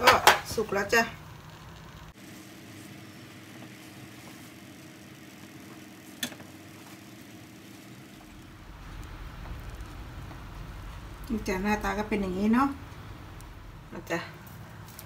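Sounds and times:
low hum: 8.1 - 15.0.

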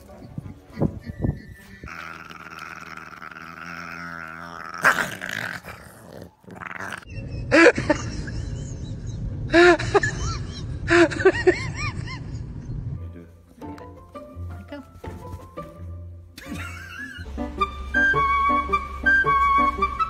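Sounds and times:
dogs yipping: 0.0 - 2.4
dogs growling: 0.0 - 7.1.

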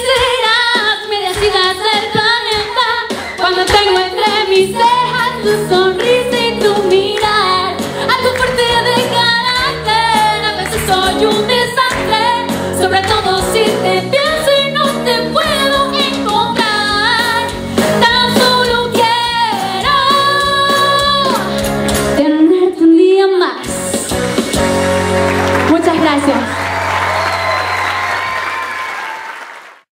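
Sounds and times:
woman singing into a microphone: 0.0 - 21.6, 22.2 - 23.7.

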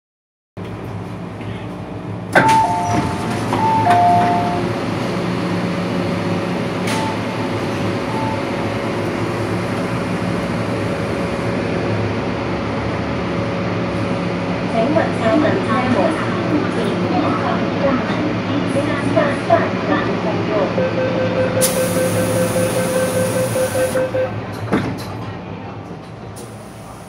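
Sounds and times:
train doors opening with bang: 2.3 - 4.8, 6.8 - 7.5, 23.4 - 25.4
two-tone door chime: 2.4 - 4.6
short beep: 20.8 - 24.4.

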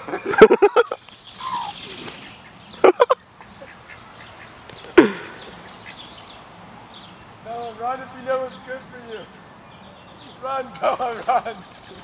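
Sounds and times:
duck quacking: 2.4 - 4.6.

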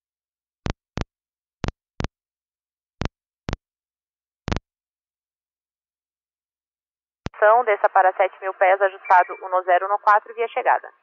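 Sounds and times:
radio squelch bursts: 7.3 - 11.0.

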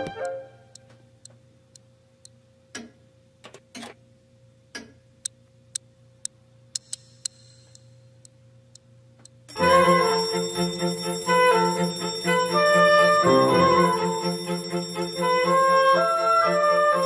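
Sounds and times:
alarm clock ticking: 9.5 - 17.0.

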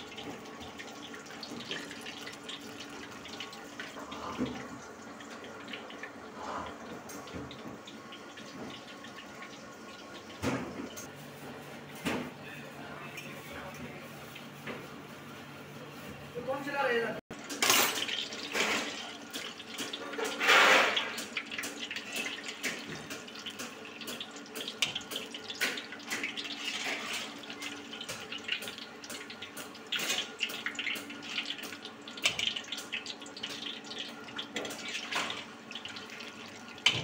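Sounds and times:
batter deep-frying in hot oil: 0.0 - 11.6, 16.4 - 37.0
crackling pops of frying: 17.4 - 26.6.

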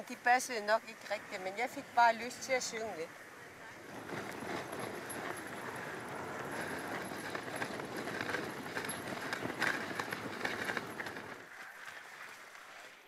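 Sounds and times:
sled runners scraping snow: 3.6 - 13.0
sled clicks and knocks: 3.8 - 12.9.

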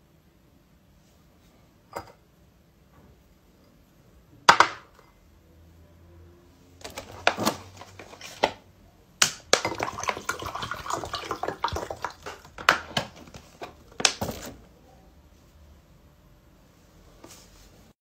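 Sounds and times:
water pouring into a glass: 9.6 - 12.5
plastic bottle clicks and knocks: 11.5 - 13.4.

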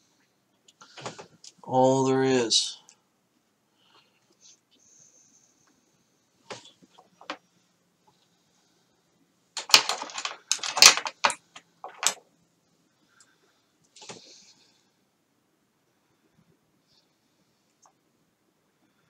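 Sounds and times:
objects clattering on workbench: 9.6 - 12.2.

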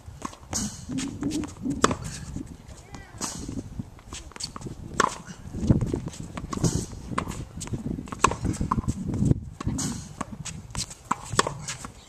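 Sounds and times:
racket hitting tennis ball: 0.2 - 12.0
ball bouncing on court: 4.2 - 12.0.

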